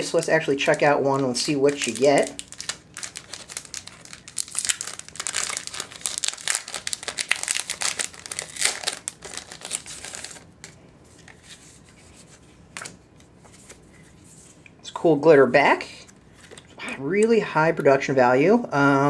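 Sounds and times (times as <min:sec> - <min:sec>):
plastic packaging crinkling: 0:00.0 - 0:11.8.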